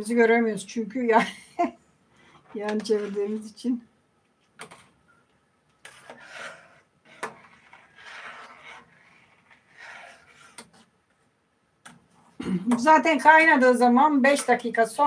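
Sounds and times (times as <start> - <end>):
spoon stirring soup in a pot: 5.8 - 11.0.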